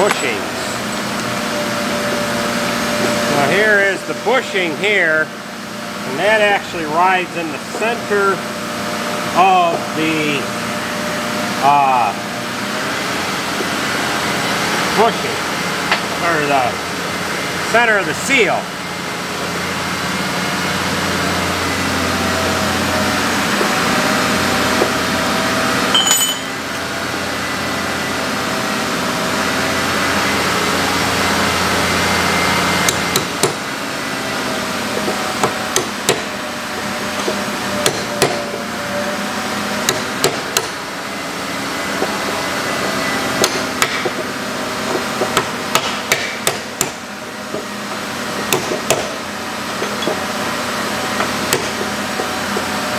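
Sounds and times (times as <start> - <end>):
steady machine hum: 0.0 - 52.9
hammer tapping metal: 26.0 - 26.6.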